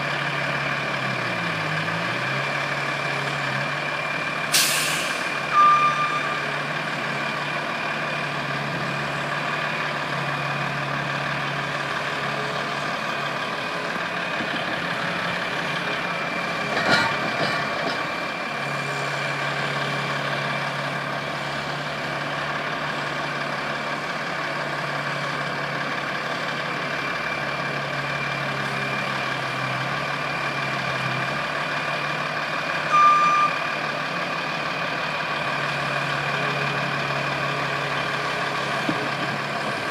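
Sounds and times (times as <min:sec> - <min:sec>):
diesel engines running: 0:00.0 - 0:39.9
short beep: 0:05.5 - 0:06.4, 0:32.9 - 0:33.6.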